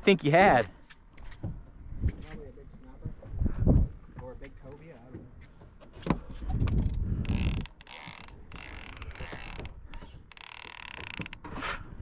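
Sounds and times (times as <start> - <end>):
fishing reel ratcheting clicks: 7.3 - 9.6, 10.3 - 11.4.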